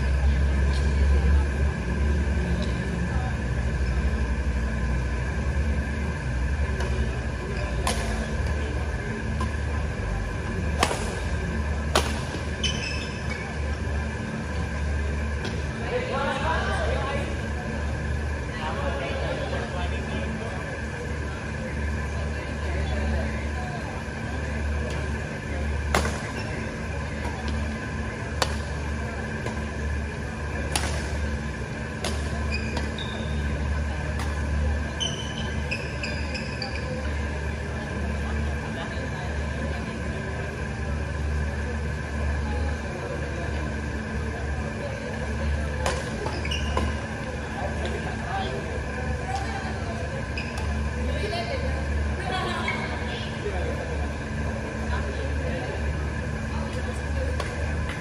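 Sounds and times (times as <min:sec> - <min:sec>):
steady low hum: 0:00.0 - 0:58.0
court shoes squeaking: 0:06.8 - 0:09.6, 0:10.7 - 0:15.6, 0:24.8 - 0:38.0, 0:45.6 - 0:52.0
racket striking shuttlecock: 0:10.8 - 0:11.2, 0:11.9 - 0:12.4, 0:28.4 - 0:28.7, 0:30.7 - 0:31.2.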